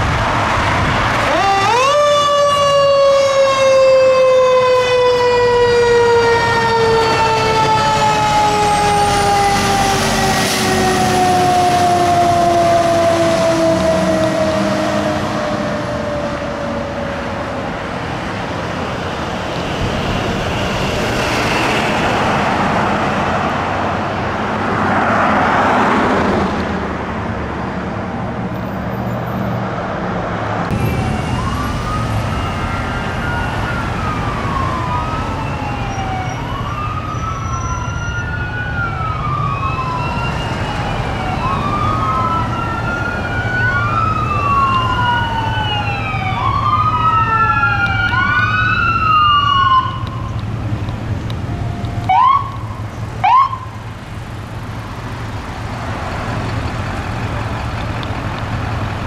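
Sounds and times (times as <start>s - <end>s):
fire engine driving off: 0.0s - 59.0s
traffic noise: 0.0s - 59.0s
ambulance siren wailing: 1.2s - 19.7s, 30.7s - 55.8s.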